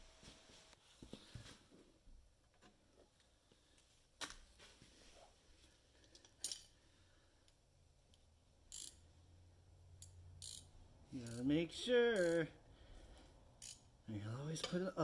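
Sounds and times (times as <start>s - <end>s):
sharp metal clinks of hand tools: 11.2s - 11.5s, 12.2s - 12.4s.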